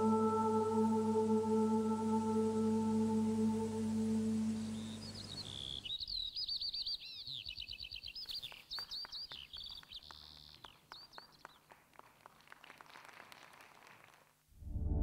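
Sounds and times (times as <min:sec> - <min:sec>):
recorded birdsong chirps and trills: 0:02.5 - 0:11.6.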